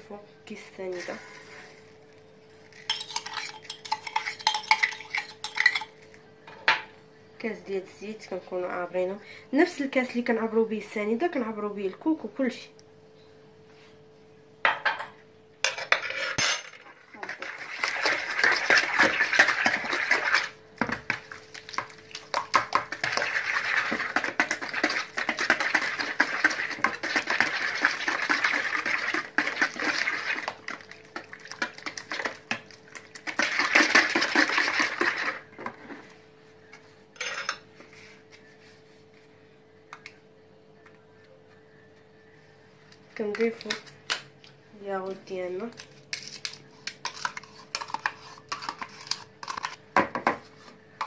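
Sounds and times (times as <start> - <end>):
wire whisk beating in bowl: 17.2 - 32.6.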